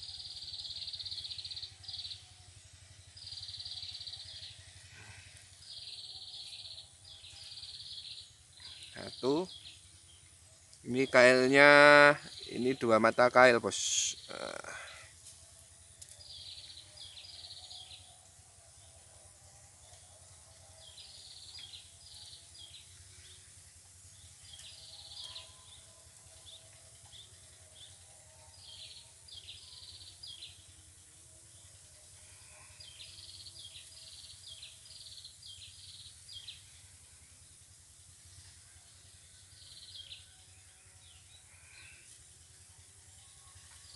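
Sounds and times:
bird chirps: 0:05.7 - 0:15.0, 0:24.1 - 0:30.7.

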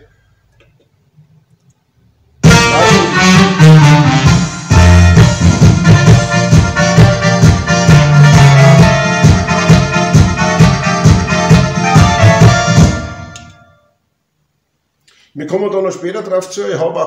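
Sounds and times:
accordion music with bass: 0:02.4 - 0:13.5.

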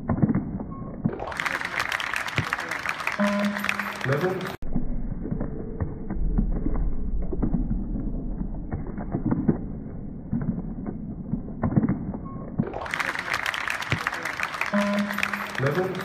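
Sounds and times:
low rumble: 0:04.6 - 0:12.0.

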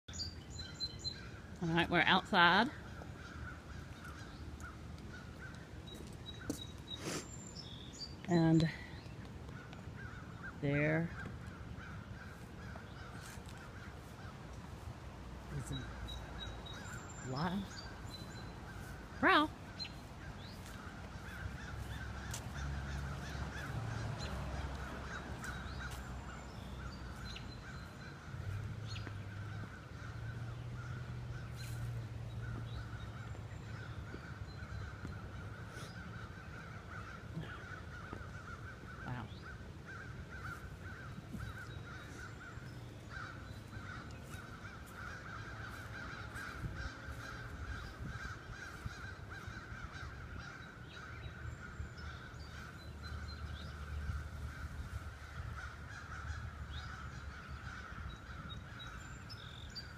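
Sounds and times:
birds calling: 0:00.1 - 0:59.9.

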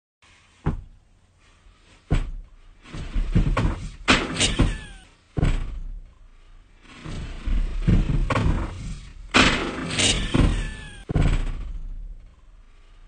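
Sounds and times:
knock: 0:00.6 - 0:00.9, 0:02.1 - 0:02.4, 0:03.3 - 0:05.8
heavy thud: 0:00.6 - 0:01.0, 0:02.0 - 0:12.7
short falling squeak: 0:04.3 - 0:06.0, 0:09.8 - 0:12.0.

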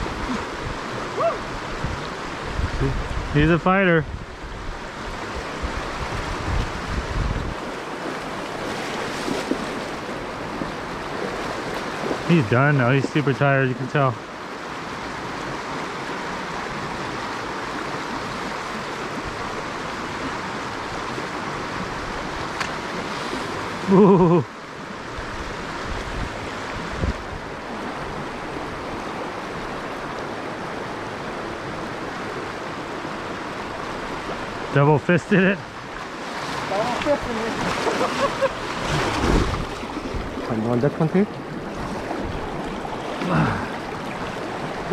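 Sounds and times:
wind buffeting microphone: 0:00.0 - 0:12.6, 0:25.2 - 0:29.8, 0:38.6 - 0:44.9
river water rushing over rocks: 0:00.0 - 0:44.9
water running over rocks: 0:07.5 - 0:14.1, 0:33.1 - 0:44.9.

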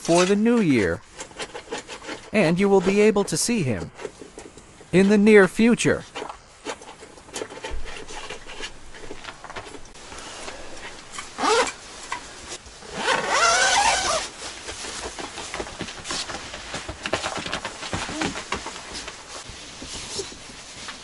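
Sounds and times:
nylon bags rustling: 0:10.8 - 0:21.0
zipper pulled: 0:11.2 - 0:11.8, 0:12.8 - 0:14.4.

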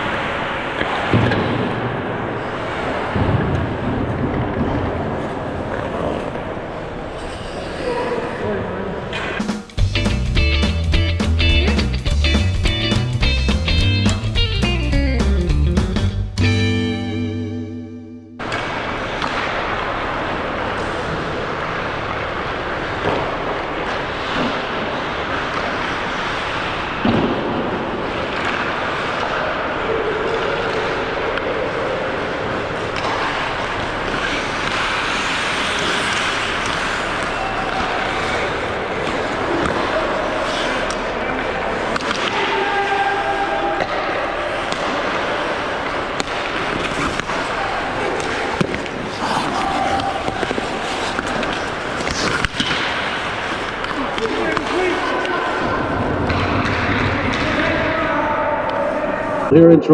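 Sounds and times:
skates scraping on ice: 0:00.0 - 0:08.4, 0:30.4 - 0:57.8
hockey sticks knocking puck: 0:18.4 - 0:29.4, 0:32.5 - 0:58.0.

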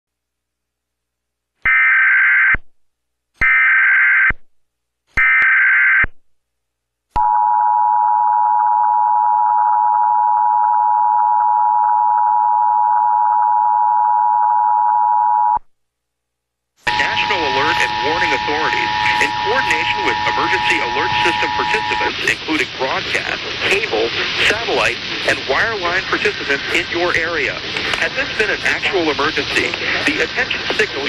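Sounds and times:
two-tone attention signal: 0:16.9 - 0:22.2
digital data tone bursts: 0:16.9 - 0:26.9.

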